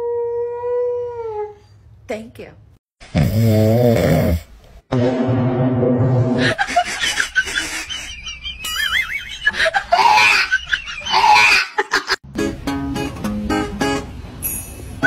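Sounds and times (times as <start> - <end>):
warbling high-pitched tone: 4.9 - 6.6
people laughing: 6.4 - 12.2.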